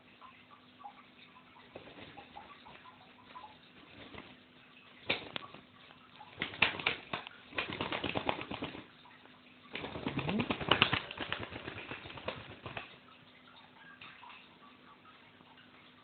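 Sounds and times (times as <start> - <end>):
parakeet wings fluttering: 1.6 - 8.9, 9.7 - 13.2.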